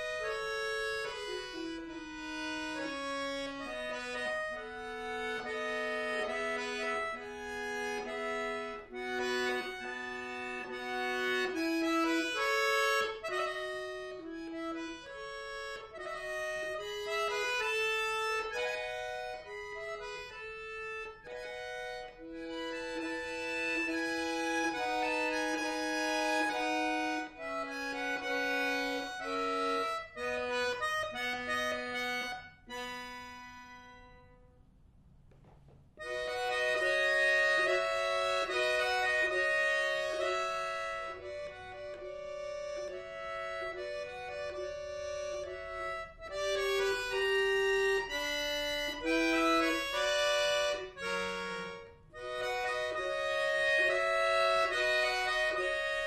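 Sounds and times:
button accordion playing: 0:00.0 - 0:34.5, 0:36.0 - 0:56.0.

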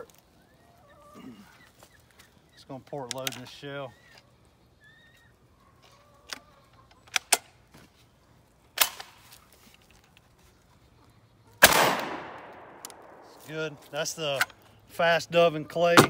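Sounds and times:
shotgun action metallic clicks: 0:03.0 - 0:03.5, 0:07.0 - 0:07.5, 0:11.6 - 0:13.2.

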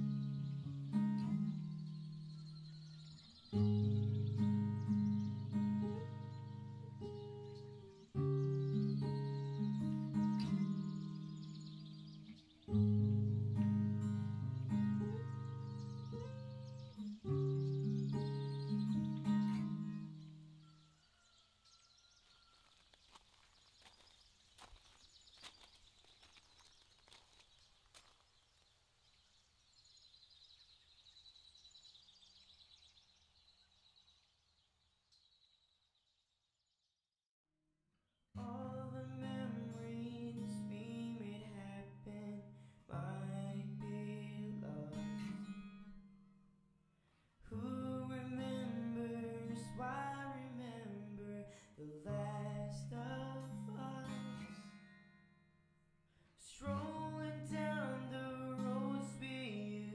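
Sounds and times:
strummed acoustic guitar music: 0:00.0 - 0:21.0, 0:38.4 - 0:46.4, 0:47.5 - 0:59.9.

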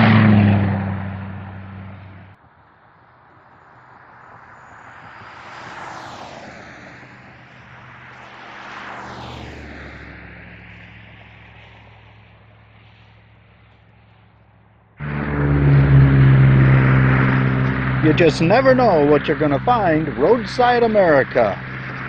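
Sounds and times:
loud vehicle passing: 0:00.0 - 0:22.0
road traffic passing: 0:00.0 - 0:22.0.

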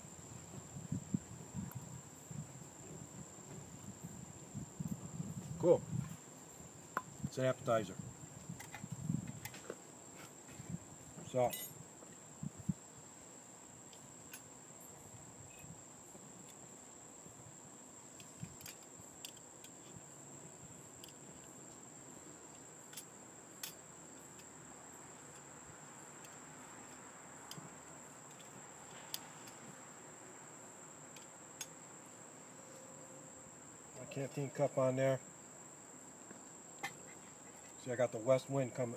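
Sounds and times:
high-pitched insect buzz: 0:14.1 - 0:17.5.

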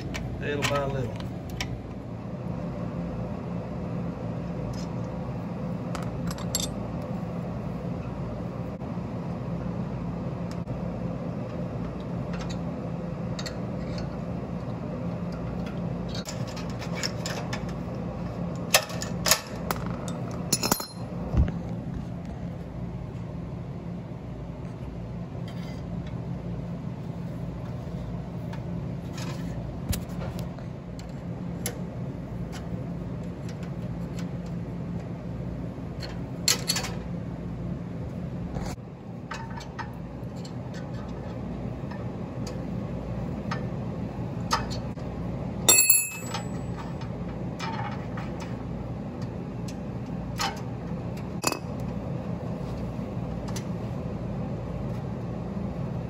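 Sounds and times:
steady low hum: 0:00.0 - 0:56.0
wrench clinking on metal: 0:20.5 - 0:21.1, 0:45.7 - 0:46.8.

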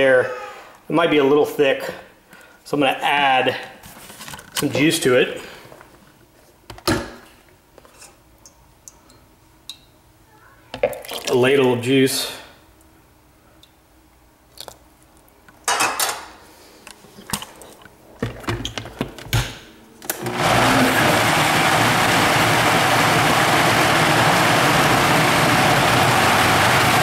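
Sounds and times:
blender running at high speed: 0:20.1 - 0:27.0.

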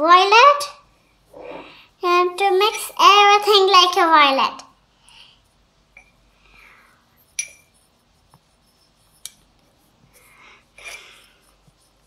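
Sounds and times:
paintbrush swishing in paint: 0:07.0 - 0:10.5, 0:11.3 - 0:12.0
brush clinking against glass: 0:07.3 - 0:07.8.

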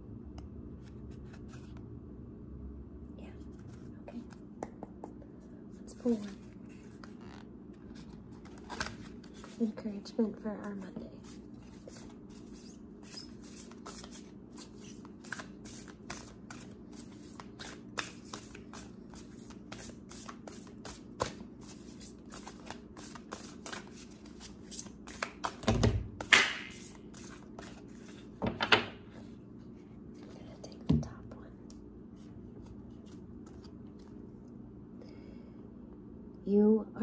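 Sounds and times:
faint low hum: 0:00.0 - 0:26.2, 0:26.9 - 0:37.0
cards being shuffled: 0:00.8 - 0:01.8, 0:06.0 - 0:09.7, 0:10.7 - 0:28.3, 0:32.6 - 0:34.2.

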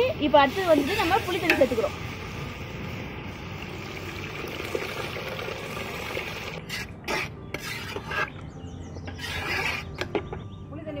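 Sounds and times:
liquid pouring into pot: 0:03.8 - 0:06.6
ladle scraping and knocking pot: 0:06.6 - 0:10.4.

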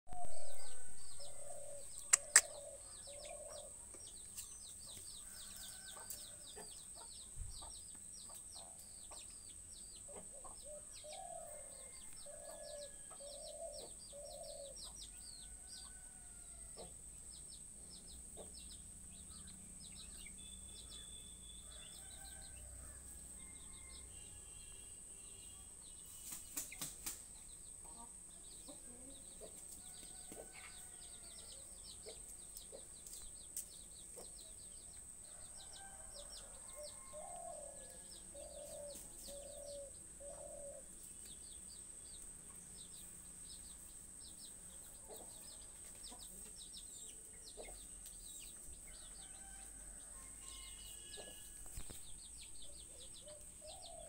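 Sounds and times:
chickens clucking: 0:00.1 - 0:05.0
chickens pecking on concrete: 0:02.1 - 0:02.6, 0:25.9 - 0:39.6
faint high chirping: 0:17.6 - 0:22.8.

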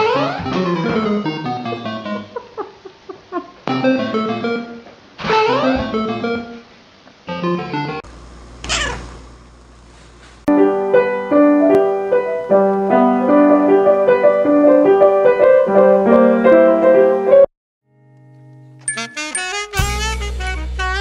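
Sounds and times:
grand piano playing: 0:10.5 - 0:17.5, 0:18.8 - 0:20.9.

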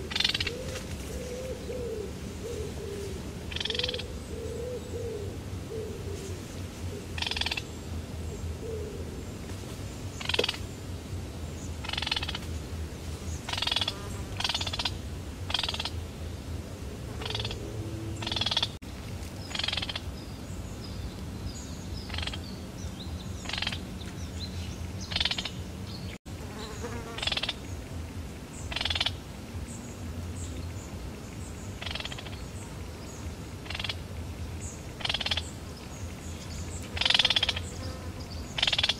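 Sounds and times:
frogs croaking: 0:00.0 - 0:00.8, 0:03.5 - 0:05.9, 0:07.1 - 0:07.8, 0:10.1 - 0:10.8, 0:11.8 - 0:12.5, 0:13.5 - 0:16.0, 0:17.1 - 0:18.8, 0:19.4 - 0:20.2, 0:22.0 - 0:22.5, 0:23.4 - 0:24.0, 0:25.0 - 0:25.7, 0:27.1 - 0:27.8, 0:28.5 - 0:29.2, 0:30.6 - 0:32.6, 0:33.5 - 0:37.9, 0:38.5 - 0:38.9.

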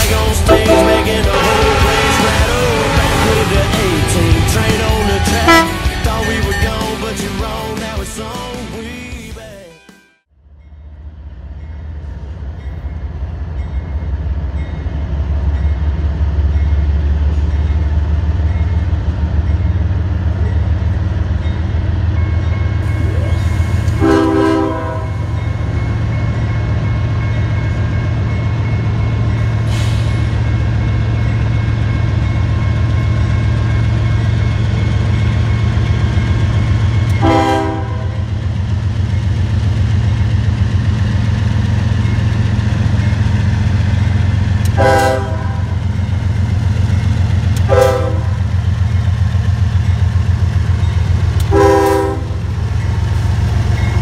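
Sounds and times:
diesel locomotive rumbling: 0:00.0 - 0:09.7, 0:10.3 - 0:54.0
locomotive horn blasts: 0:00.5 - 0:06.1, 0:23.9 - 0:25.3, 0:37.2 - 0:38.3, 0:44.7 - 0:45.8, 0:47.6 - 0:48.4, 0:51.4 - 0:52.4.

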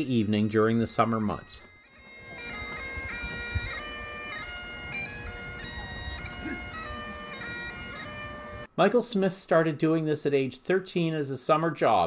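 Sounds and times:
bagpipes playing: 0:01.1 - 0:08.7.

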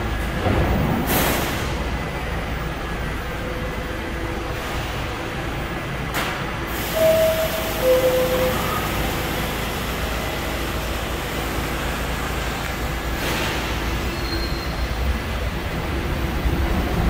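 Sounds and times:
train humming: 0:00.0 - 0:17.0
two-tone door closing chime: 0:07.0 - 0:09.2.

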